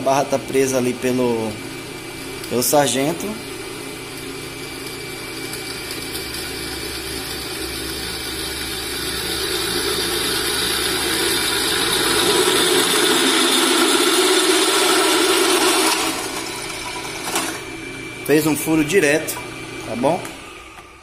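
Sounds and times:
drill press boring metal: 4.8 - 17.6.

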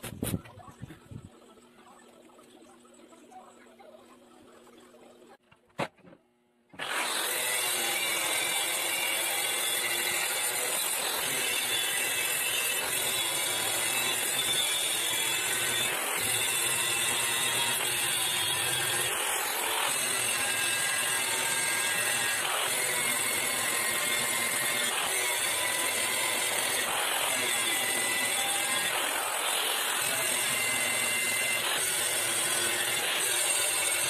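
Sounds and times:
angle grinder grinding steel: 6.8 - 34.0.

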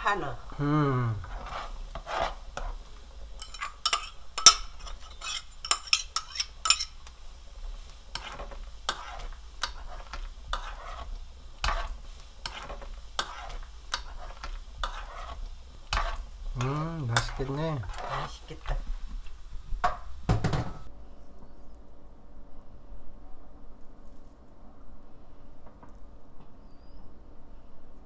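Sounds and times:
soup bubbling: 0.4 - 20.6
ladle clinking and scraping pot: 1.2 - 7.1, 8.1 - 19.0.

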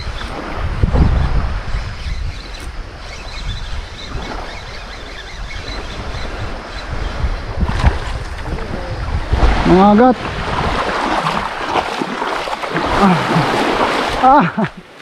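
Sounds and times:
wind buffeting microphone: 0.0 - 14.8
small waves washing: 2.4 - 15.0.

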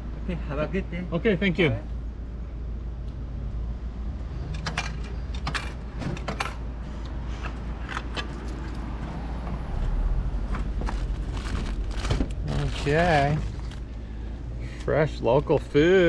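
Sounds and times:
vending machine clicks and clatter: 4.6 - 6.7
low hum: 8.4 - 14.8.

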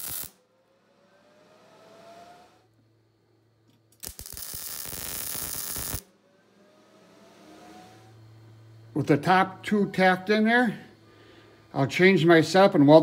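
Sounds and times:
welder arc crackling: 0.0 - 0.4, 3.7 - 6.1
faint rising whine: 0.0 - 3.9, 4.8 - 13.0.

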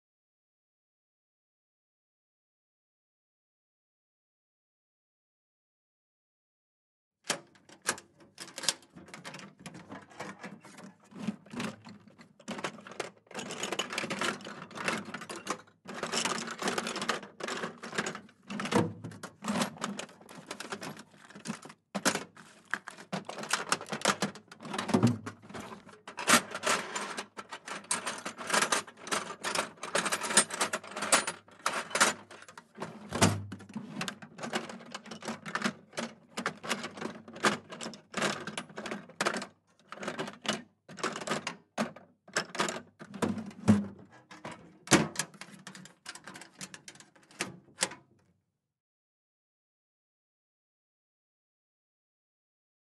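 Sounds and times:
tools clattering in metal toolbox: 7.4 - 47.9.

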